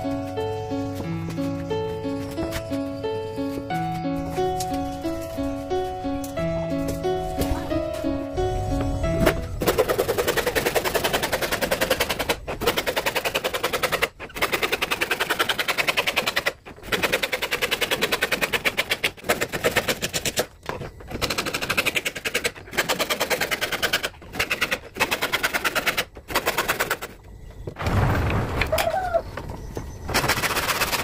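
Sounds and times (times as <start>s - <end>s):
hand saw cutting wood: 9.6s - 20.5s, 21.1s - 27.1s.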